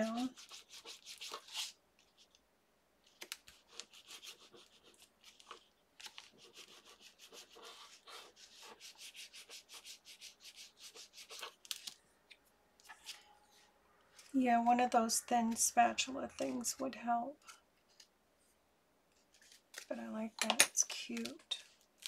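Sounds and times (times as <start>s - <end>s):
plastic tool rubbing on paper: 0.0s - 2.4s, 3.2s - 11.8s.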